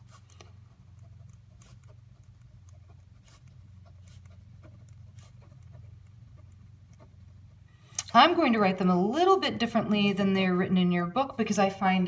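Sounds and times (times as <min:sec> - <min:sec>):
pen scratching on paper: 0:00.0 - 0:07.6.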